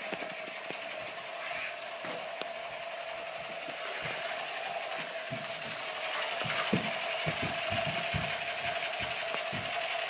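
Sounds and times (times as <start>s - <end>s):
steady hum: 0.0s - 10.0s
toys knocking and clicking: 5.2s - 10.0s.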